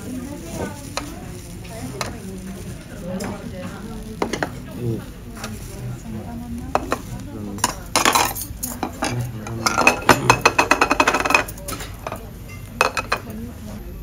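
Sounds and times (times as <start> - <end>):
tableware clattering: 3.1 - 4.8, 6.7 - 13.4
tableware knocking on table: 7.6 - 12.2, 12.8 - 13.3.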